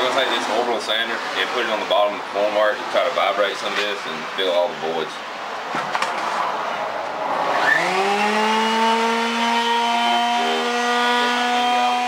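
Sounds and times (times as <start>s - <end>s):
power drill spinning: 7.4s - 12.0s.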